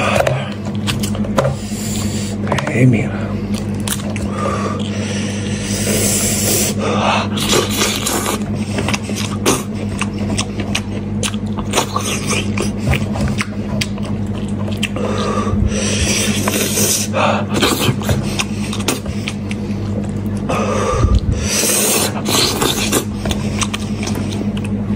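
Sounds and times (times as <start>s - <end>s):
steady low hum: 0.0s - 24.9s
wet chewing and sucking: 3.5s - 24.9s.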